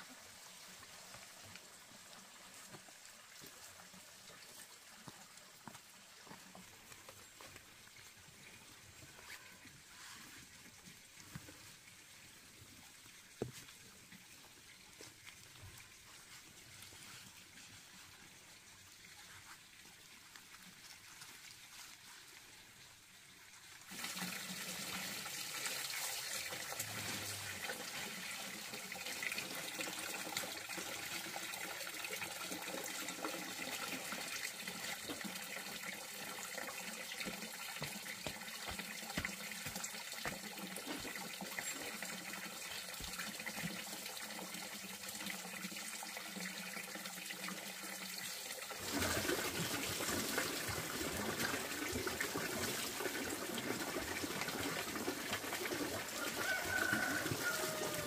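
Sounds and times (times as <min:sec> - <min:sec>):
running water: 0:00.0 - 0:58.0.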